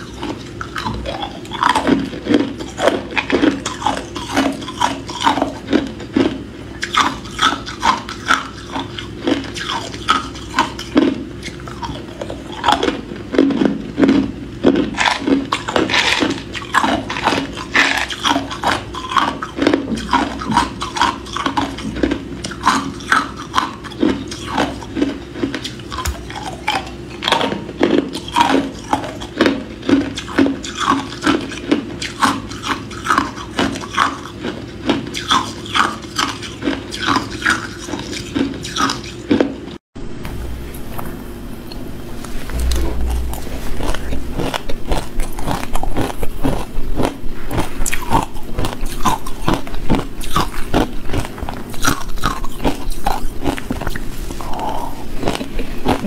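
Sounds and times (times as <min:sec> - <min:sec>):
ice cubes crunched between teeth: 0:42.6 - 0:56.0.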